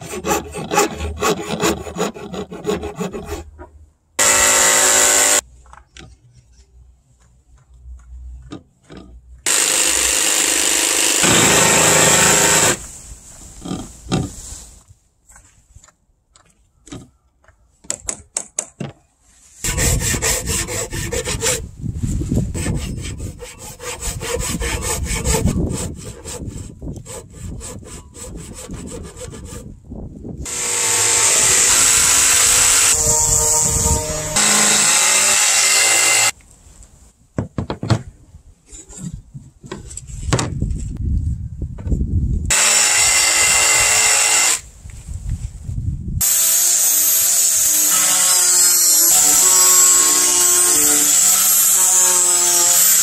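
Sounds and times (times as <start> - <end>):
jigsaw cutting wood: 4.2 - 5.4, 9.5 - 12.8, 30.5 - 36.3, 42.5 - 44.6, 46.2 - 53.0.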